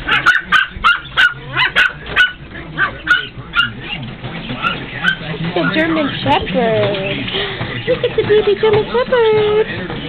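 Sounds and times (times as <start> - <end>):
puppy yipping: 0.0 - 6.2.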